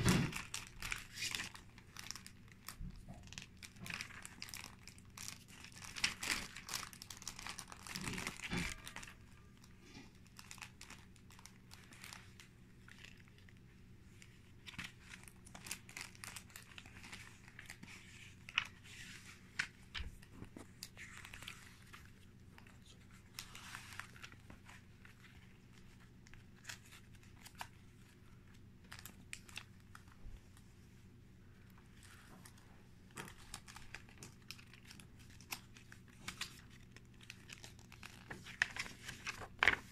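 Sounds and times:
paper pages rustling: 3.4s - 9.3s, 14.2s - 30.7s, 31.7s - 39.9s.

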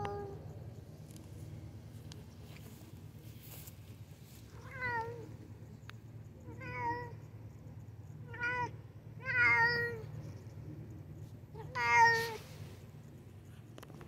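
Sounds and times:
cat meowing: 11.6s - 12.4s.

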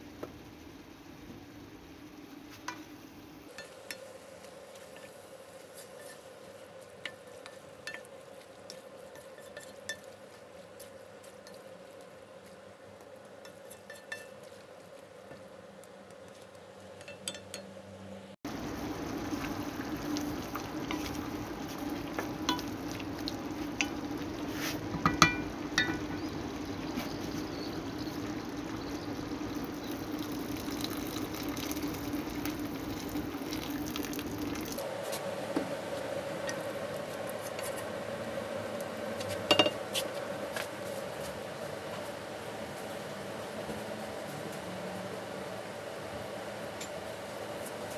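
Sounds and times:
meat cooking in juices: 0.0s - 17.5s, 18.4s - 35.1s
wooden spoon stirring in a pot: 3.5s - 17.2s, 18.5s - 34.8s
spoon knocking against pot: 24.9s - 26.2s, 39.5s - 39.8s.

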